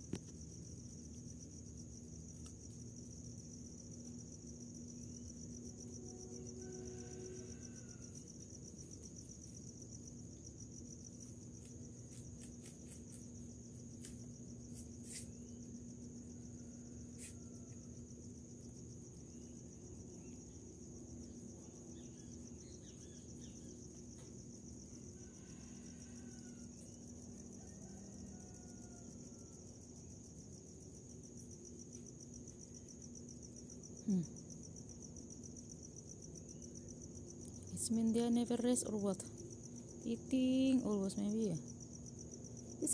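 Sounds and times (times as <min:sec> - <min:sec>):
low steady hum: 0:00.0 - 0:27.6
crickets chirping: 0:00.0 - 0:42.9.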